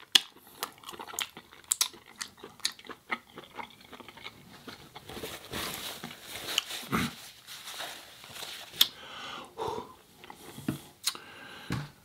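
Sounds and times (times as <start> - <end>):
wet chewing and mouth sounds: 0.0 - 5.5.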